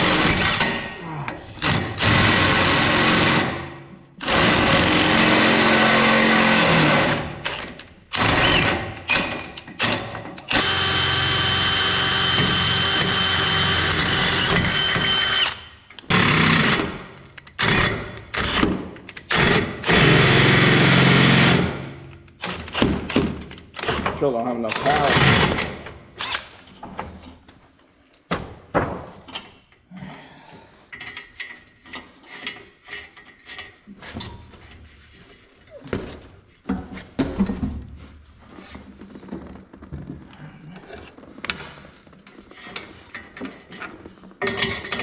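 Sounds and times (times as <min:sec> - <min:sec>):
cordless drill labouring in metal: 0:01.6 - 0:03.6, 0:04.2 - 0:08.8, 0:09.8 - 0:16.9, 0:19.3 - 0:21.7.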